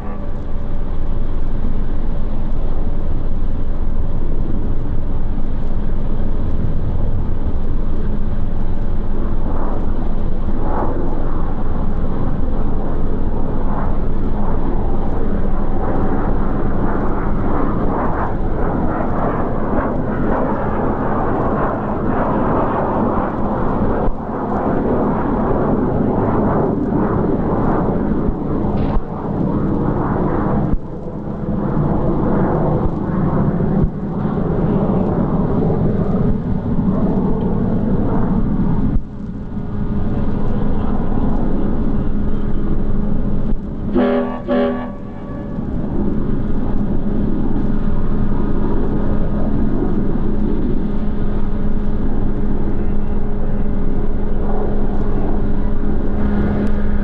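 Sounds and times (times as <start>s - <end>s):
diesel locomotive rumbling: 0.0s - 10.6s, 39.6s - 57.0s
constant low hum: 0.0s - 57.0s.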